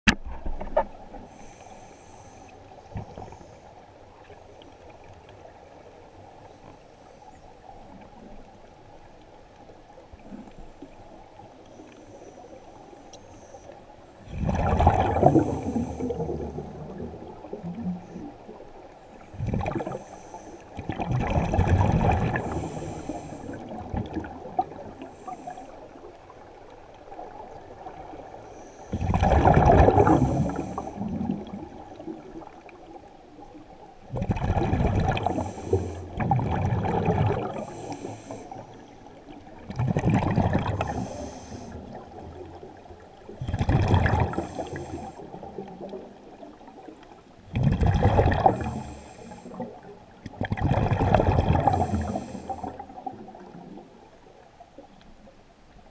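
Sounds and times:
underwater water noise: 0:00.1 - 0:55.9
scuba regulator breathing: 0:01.2 - 0:03.7, 0:15.2 - 0:17.0, 0:19.8 - 0:20.8, 0:22.3 - 0:23.7, 0:25.0 - 0:26.0, 0:28.4 - 0:29.1, 0:29.9 - 0:31.2, 0:35.1 - 0:36.2, 0:37.4 - 0:39.0, 0:40.7 - 0:42.0, 0:44.3 - 0:45.5, 0:48.4 - 0:49.8, 0:51.6 - 0:53.0.

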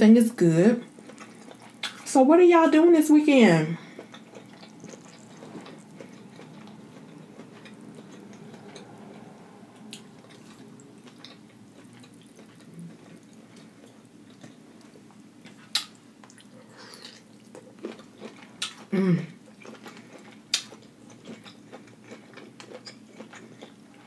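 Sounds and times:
low room hum: 0:00.0 - 0:24.0
food dripping and swishing in sauce: 0:04.1 - 0:08.9.

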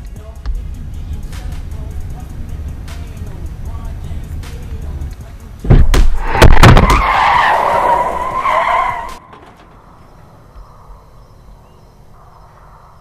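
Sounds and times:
car tyres screeching: 0:01.4 - 0:13.0
collision thuds: 0:05.6 - 0:11.2.

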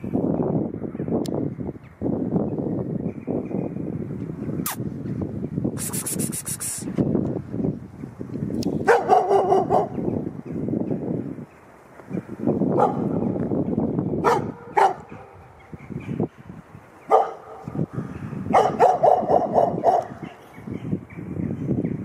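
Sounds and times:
dog barking: 0:08.8 - 0:10.1, 0:12.7 - 0:13.2, 0:14.2 - 0:15.4, 0:17.1 - 0:17.8, 0:18.4 - 0:20.4.

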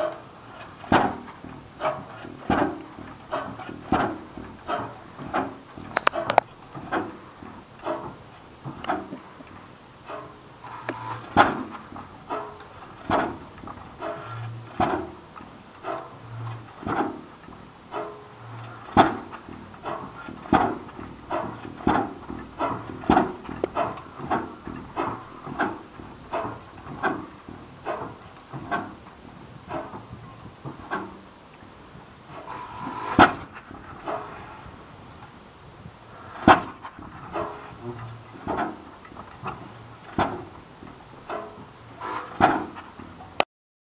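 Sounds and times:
stationary gas engine banging: 0:00.0 - 0:43.4
engine clacks: 0:00.0 - 0:43.5.

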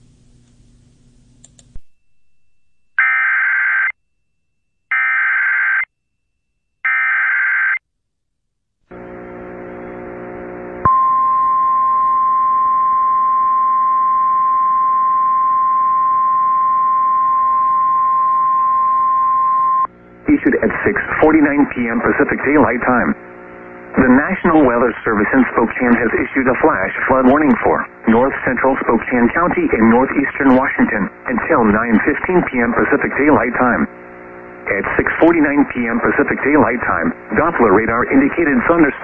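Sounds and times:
buzzing hum: 0:08.9 - 0:38.9.

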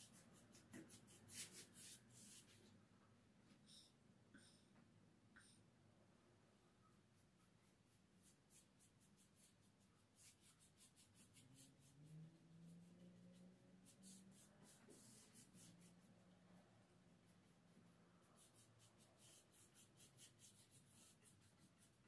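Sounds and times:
paintbrush strokes on handrail: 0:00.0 - 0:02.7, 0:07.1 - 0:16.4.

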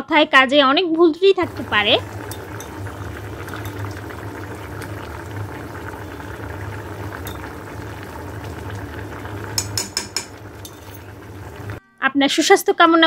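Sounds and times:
curry bubbling in a pot: 0:01.4 - 0:11.8
spoon clinking against pot: 0:02.2 - 0:04.0, 0:07.2 - 0:07.6, 0:09.5 - 0:11.2.

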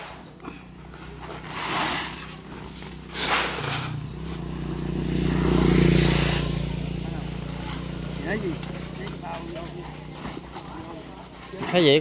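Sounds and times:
engine hum: 0:00.0 - 0:12.0
granules swishing on a tarp: 0:01.3 - 0:04.0.

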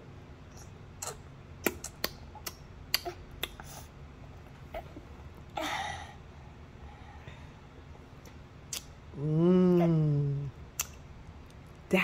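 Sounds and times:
toddler sucking and chewing fingers: 0:00.5 - 0:03.9.

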